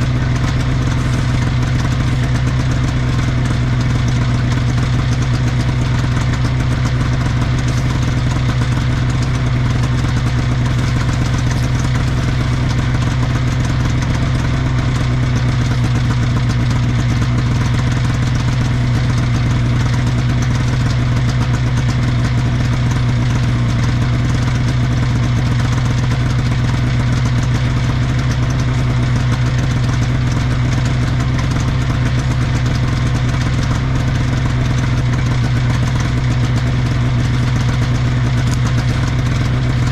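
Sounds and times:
snowmobile engine idling: 0:00.0 - 0:39.9.

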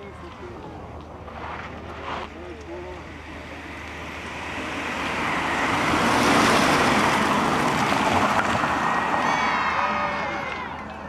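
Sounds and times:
car engine driving past: 0:03.0 - 0:10.7.

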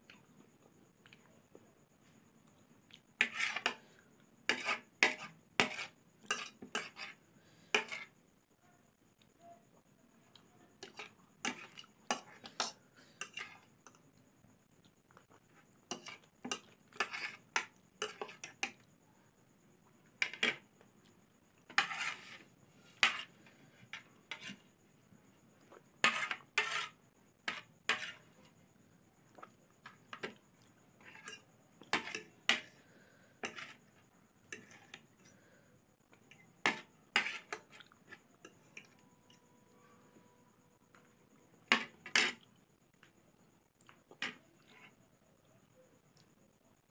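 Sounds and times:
cutlery scraping a plate: 0:03.2 - 0:03.9, 0:04.5 - 0:08.1, 0:10.8 - 0:14.0, 0:15.6 - 0:18.8, 0:20.2 - 0:20.6, 0:21.6 - 0:24.7, 0:26.0 - 0:28.3, 0:31.0 - 0:32.8, 0:33.4 - 0:33.9, 0:34.5 - 0:35.1, 0:36.6 - 0:39.0, 0:41.7 - 0:42.5, 0:44.2 - 0:45.0.

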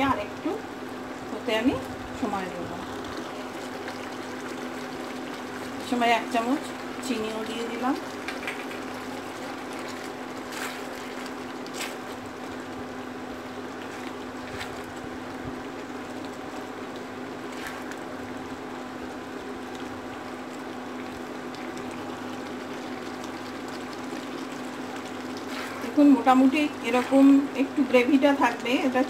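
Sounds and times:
curry bubbling in a pan: 0:00.0 - 0:29.0
steady low hum: 0:00.0 - 0:29.0
spatula stirring: 0:22.9 - 0:27.2.

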